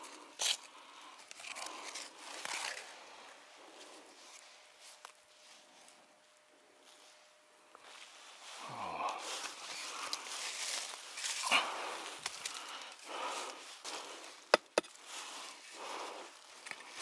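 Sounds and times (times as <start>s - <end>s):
footsteps crunching through leaves: 7.8s - 17.0s.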